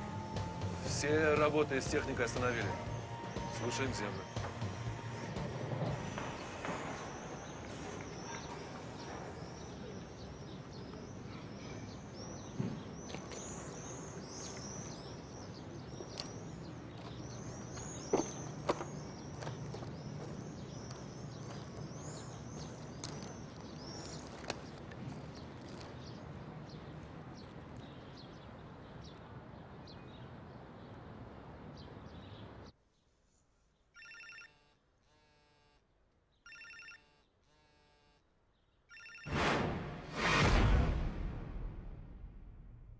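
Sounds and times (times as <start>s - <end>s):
birds chirping: 0.0s - 34.4s
mobile phone ringing: 34.0s - 35.6s, 36.5s - 38.2s, 38.9s - 39.3s
rising whoosh: 39.3s - 42.9s.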